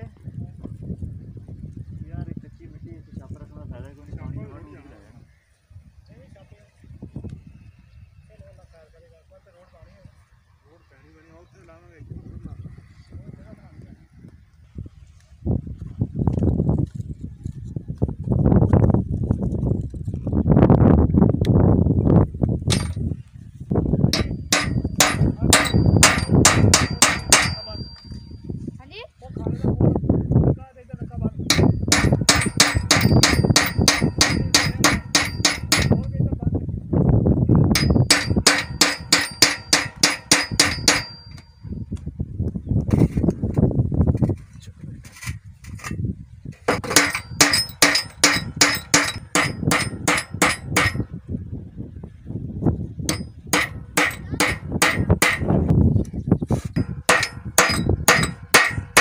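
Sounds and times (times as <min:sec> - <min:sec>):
hammer striking metal: 0:22.7 - 0:23.0, 0:24.2 - 0:28.1, 0:31.5 - 0:36.0, 0:37.8 - 0:41.5, 0:46.7 - 0:51.1, 0:53.1 - 0:55.5, 0:56.8 - 0:59.0
faint metallic ring: 0:27.5 - 0:28.5.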